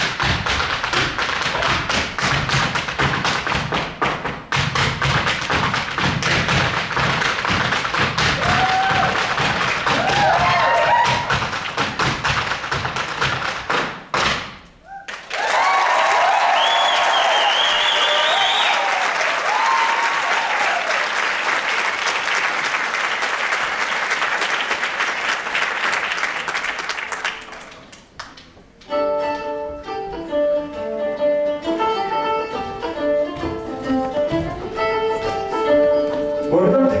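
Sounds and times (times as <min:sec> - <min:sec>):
audience applause: 0:08.4 - 0:11.3, 0:15.0 - 0:28.0
whistles from audience: 0:16.4 - 0:19.0
acoustic folk band playing: 0:28.8 - 0:37.0.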